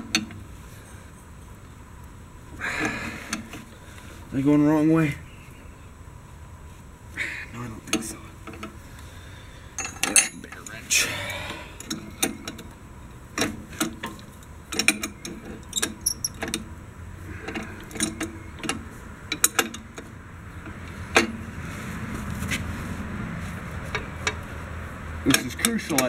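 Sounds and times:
wrenches clinking against bolts: 9.8 - 10.8, 11.4 - 12.7, 13.3 - 16.7, 17.4 - 21.4, 25.2 - 26.0.

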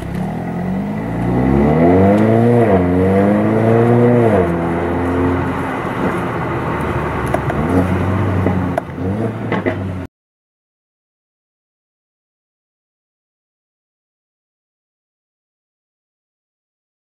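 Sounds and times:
car engine revving: 0.0 - 10.1.

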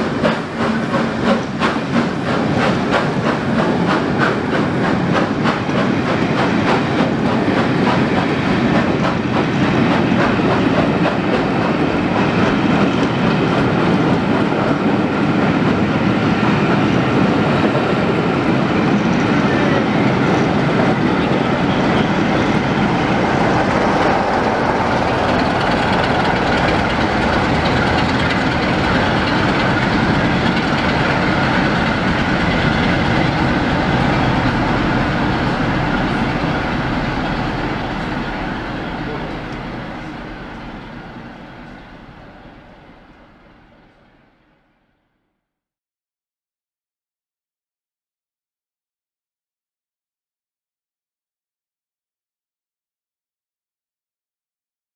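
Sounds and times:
train wheels clicking over rail joints: 0.0 - 15.8, 22.2 - 43.7.

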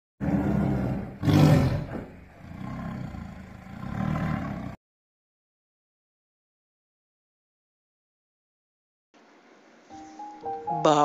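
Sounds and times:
tiger growling and roaring: 0.2 - 4.8.

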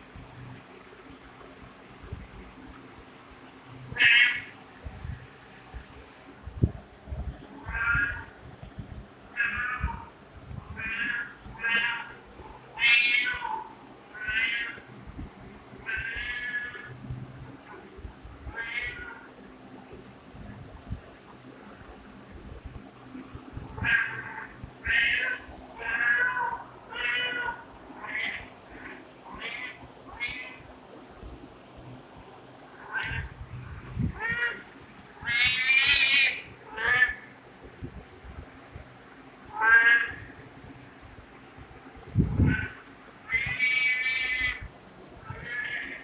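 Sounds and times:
cat meowing: 7.6 - 8.3, 9.4 - 10.1.

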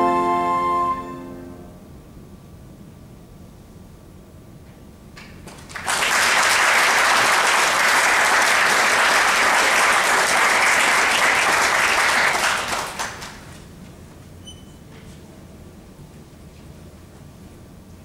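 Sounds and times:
audience applauding: 5.4 - 13.6.

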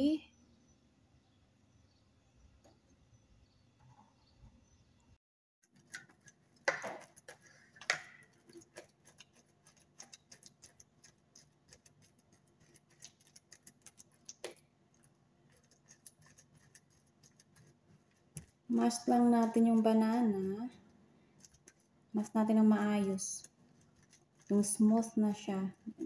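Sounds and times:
utensil tapping and scraping plate: 5.8 - 14.6.

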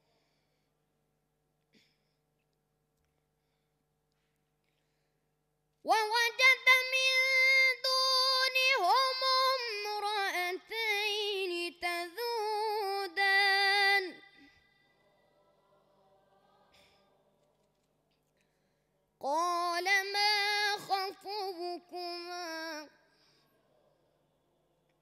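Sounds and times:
boy reciting melodically: 5.9 - 14.7, 19.2 - 23.0.

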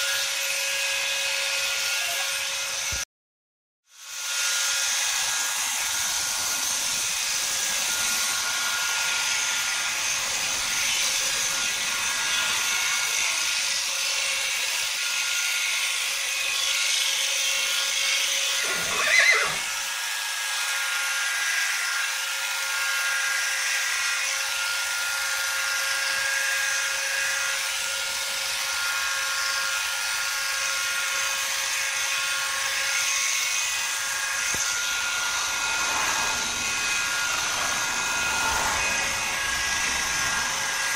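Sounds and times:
electric clippers buzzing: 0.0 - 3.0, 3.9 - 40.9
horse whinnying: 18.6 - 19.7.

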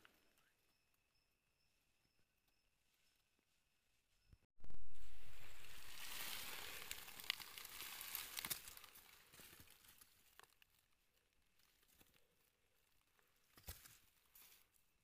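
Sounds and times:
dry leaves crackling: 4.9 - 12.0.

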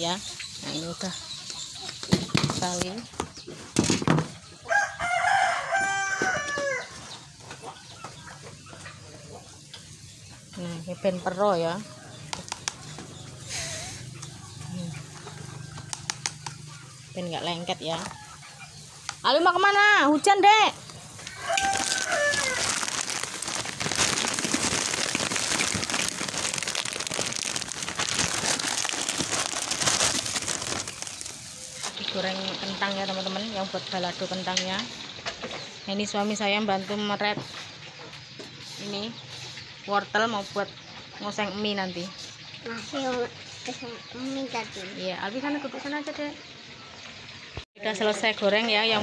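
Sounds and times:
rooster crowing: 4.6 - 7.0, 21.2 - 23.0
potatoes deep-frying in oil: 19.0 - 37.4.

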